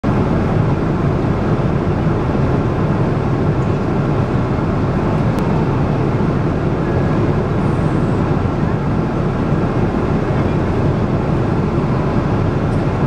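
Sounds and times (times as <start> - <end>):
airliner cabin engine roar: 0.0 - 13.0.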